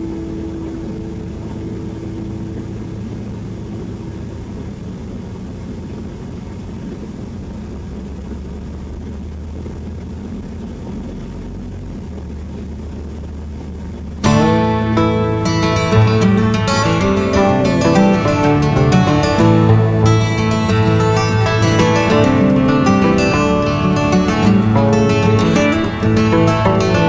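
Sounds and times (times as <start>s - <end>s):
guitar music: 0.0s - 4.9s, 14.2s - 27.0s
vehicle engine and road rumble: 0.0s - 27.0s.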